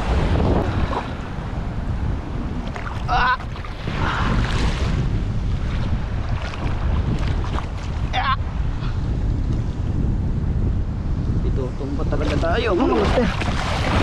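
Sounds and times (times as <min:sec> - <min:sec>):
surf washing in shallow water: 0:00.0 - 0:14.0
wind buffeting microphone: 0:00.0 - 0:14.0
wave surging: 0:12.6 - 0:14.0.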